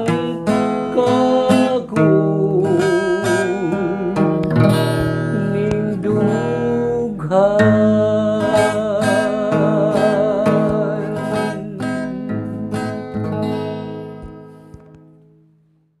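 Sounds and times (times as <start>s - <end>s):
man singing with vibrato: 0.0s - 12.6s
acoustic guitar strumming: 0.0s - 15.9s.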